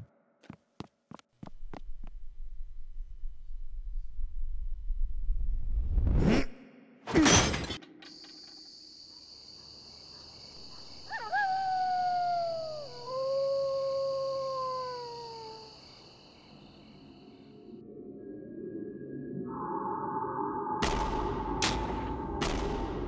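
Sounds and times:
wolf howling: 0:10.7 - 0:15.9.

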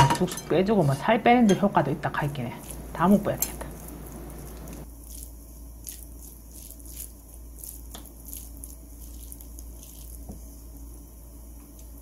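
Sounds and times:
steady low hum: 0:00.0 - 0:12.0
wooden spoon scraping and squishing: 0:02.2 - 0:10.8.

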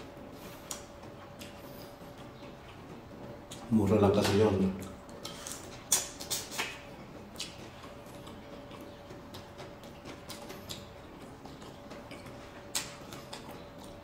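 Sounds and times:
mouth chewing: 0:00.4 - 0:03.7, 0:04.8 - 0:14.0
wet clicks and smacks: 0:03.4 - 0:14.0.

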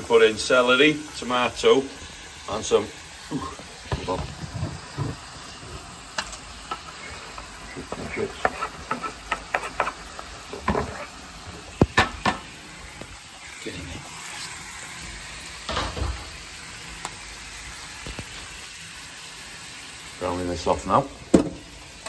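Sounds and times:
food sizzling in a pan: 0:00.0 - 0:22.0
light knocks and scrapes: 0:07.9 - 0:10.0.

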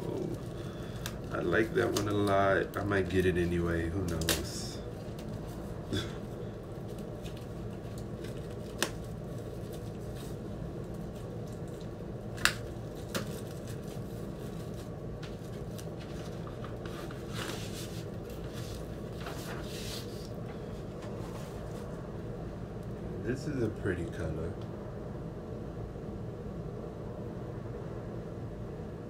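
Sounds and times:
steady low hum: 0:00.0 - 0:29.0
paper sliding rustles: 0:13.0 - 0:21.9.

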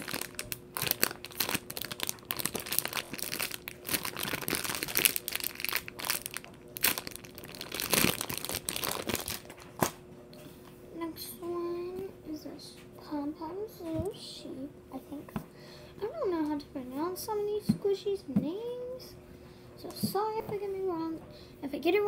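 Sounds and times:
plastic packaging crinkling: 0:00.0 - 0:10.0.

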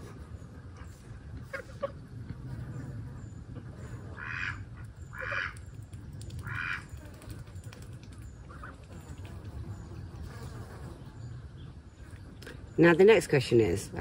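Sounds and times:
waterfowl calling: 0:04.2 - 0:05.6, 0:06.4 - 0:06.9.

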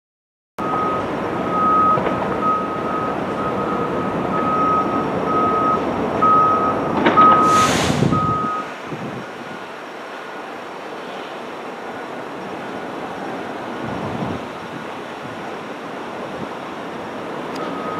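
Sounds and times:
electronic warning beeps: 0:00.6 - 0:08.7, 0:17.6 - 0:17.9
short hiss of air: 0:07.3 - 0:08.9.

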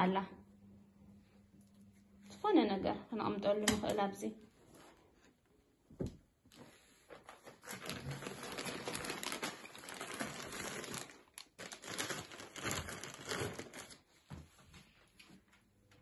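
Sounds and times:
plastic wrapping crinkling: 0:07.1 - 0:14.2.

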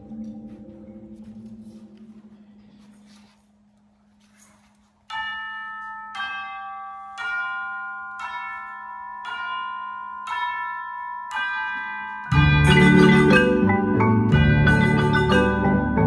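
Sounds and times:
marimbas and vibraphones playing: 0:00.0 - 0:03.2, 0:05.1 - 0:16.0
bell-like mallet chords: 0:05.1 - 0:16.0.

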